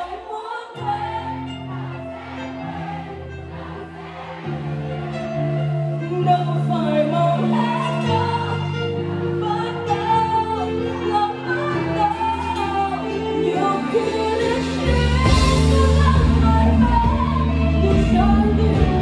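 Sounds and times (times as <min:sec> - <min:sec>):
person singing: 0:05.9 - 0:19.0
drums: 0:13.6 - 0:19.0
electric bass guitar: 0:14.3 - 0:19.0.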